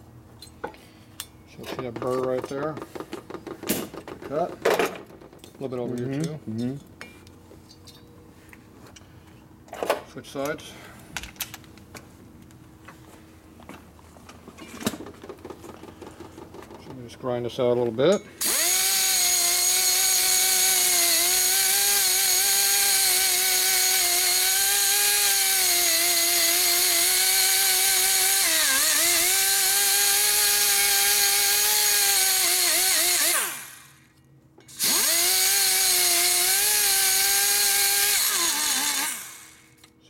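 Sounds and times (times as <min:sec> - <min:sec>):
die grinder high whine: 0:18.4 - 0:34.1, 0:34.7 - 0:39.8.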